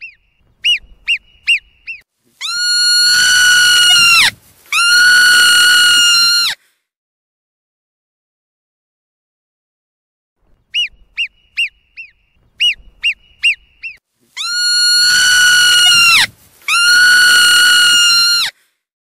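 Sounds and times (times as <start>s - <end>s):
marmot chirps: 0.0s - 6.4s, 10.7s - 18.5s
marmot whistled calls: 0.0s - 6.4s, 10.7s - 18.4s.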